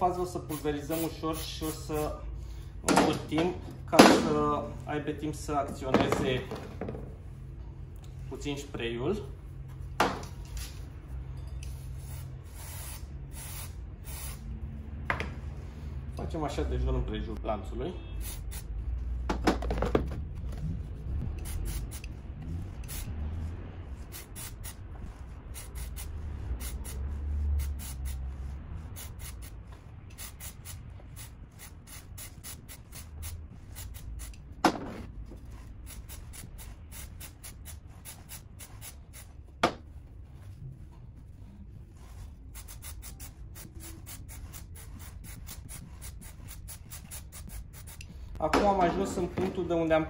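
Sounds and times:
aerosol spray hissing bursts: 11.8s - 14.5s, 18.2s - 18.7s, 21.4s - 22.1s, 24.0s - 24.8s, 25.5s - 34.4s, 35.8s - 39.3s, 42.4s - 48.2s.

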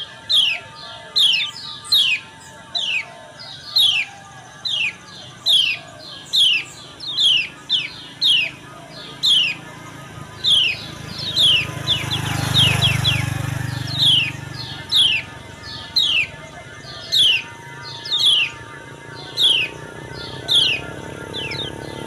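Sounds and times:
bird chirping: 0.0s - 22.0s.

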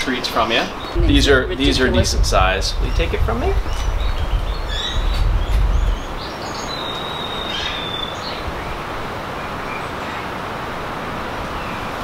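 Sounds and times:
birds chirping: 0.0s - 10.5s
low rumble: 0.9s - 6.3s.

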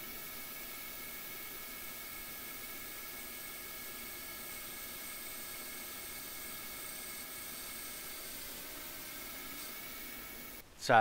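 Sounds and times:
lathe running: 0.0s - 10.6s.

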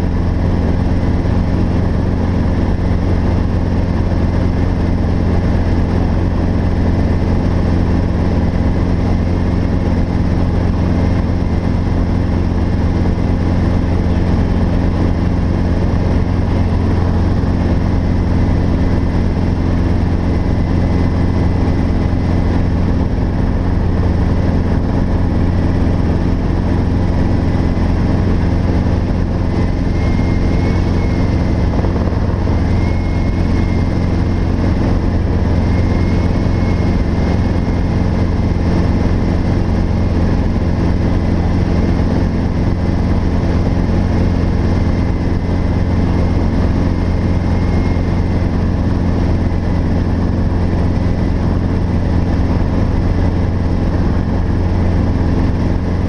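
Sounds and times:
helicopter engine and rotor drone: 0.0s - 56.0s
thin high whine: 28.3s - 38.8s.

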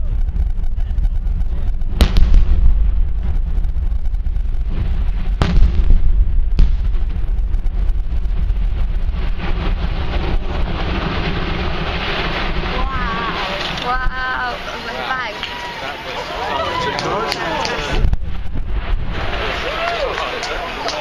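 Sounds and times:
explosive charges banging: 0.0s - 15.4s
continuous low rumble: 0.0s - 21.0s.

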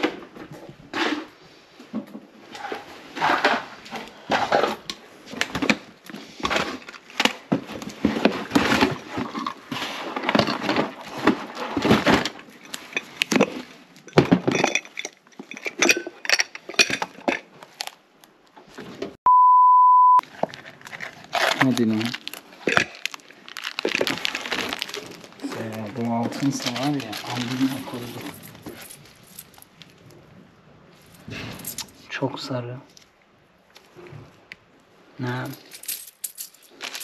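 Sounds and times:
cardboard and packaging rustling: 2.3s - 18.0s, 20.2s - 30.1s, 35.7s - 37.0s
glass clinking and clattering: 10.3s - 17.5s
electronic beep: 19.3s - 20.2s.

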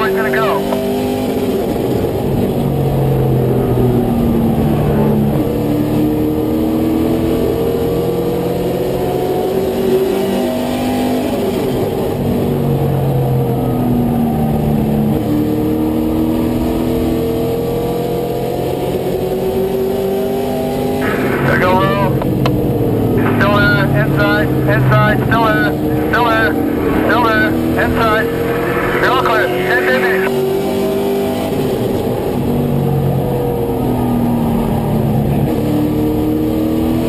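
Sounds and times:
truck engine revving: 20.8s - 30.3s.

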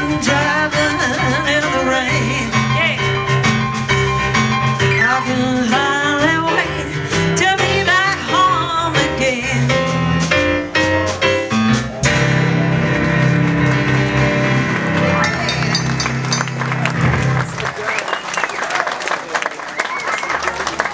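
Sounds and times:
woman singing: 0.0s - 3.1s, 4.9s - 10.0s
upright bass: 0.0s - 17.8s
piano: 0.0s - 18.5s.

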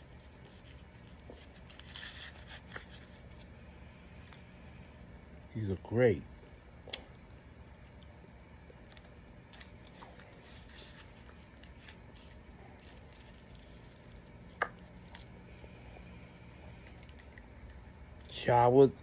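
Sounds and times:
paper and foil wrapper rustling: 0.0s - 3.6s, 8.9s - 18.6s.

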